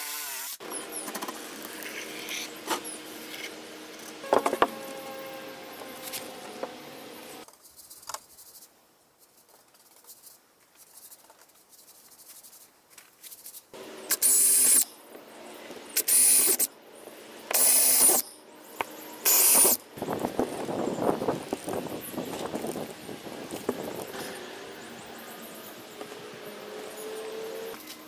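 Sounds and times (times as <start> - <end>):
cordless drill whining: 17.5 - 18.2, 19.2 - 19.8.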